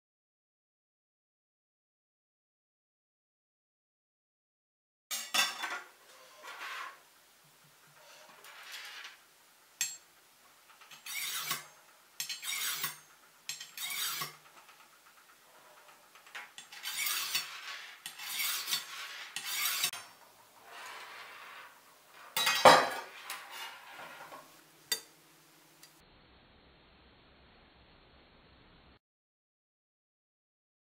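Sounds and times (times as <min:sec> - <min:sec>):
blade scraping through sharpener: 0:10.9 - 0:14.4, 0:16.6 - 0:20.1.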